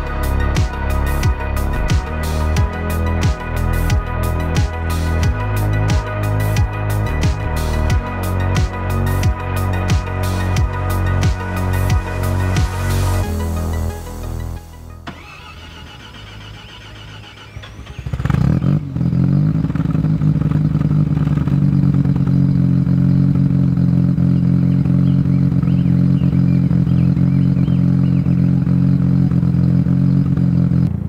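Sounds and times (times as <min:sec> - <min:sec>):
rotary engine starting and idling: 0:11.2 - 0:31.0.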